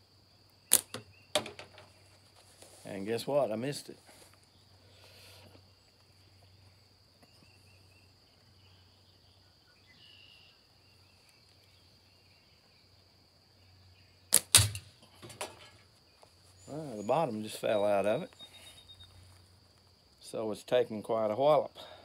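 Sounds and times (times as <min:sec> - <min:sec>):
slingshot bands snapping: 0:00.7 - 0:01.0, 0:14.3 - 0:14.9.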